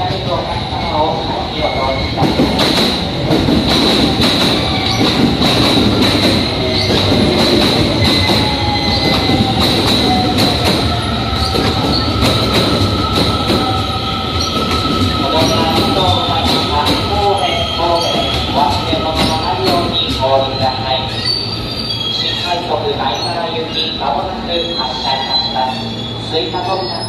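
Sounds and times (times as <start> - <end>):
train wheels clacking over rail joints: 2.2 - 13.8, 18.0 - 20.2
high-pitched wheel squeal: 20.6 - 23.9.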